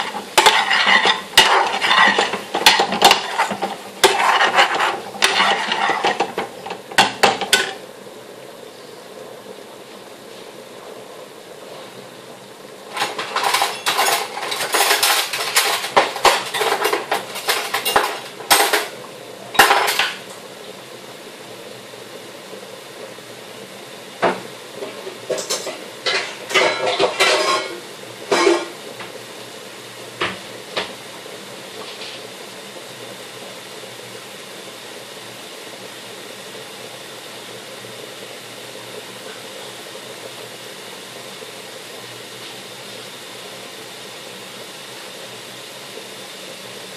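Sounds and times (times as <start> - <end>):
metal kitchenware clattering: 0.0 - 7.8, 13.0 - 18.9, 25.3 - 28.8
steady background hiss: 0.0 - 46.9.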